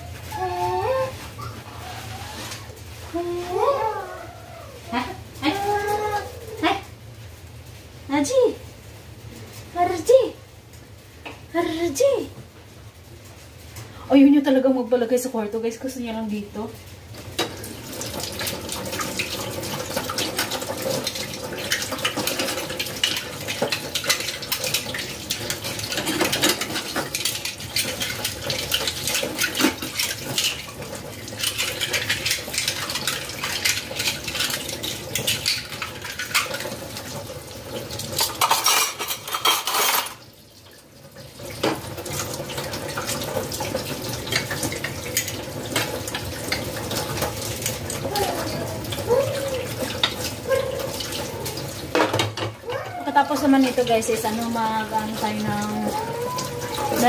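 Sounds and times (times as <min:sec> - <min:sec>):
water running from tap: 0:13.9 - 0:57.0
pans and cutlery clattering: 0:18.2 - 0:37.0, 0:37.9 - 0:40.2, 0:49.9 - 0:52.6.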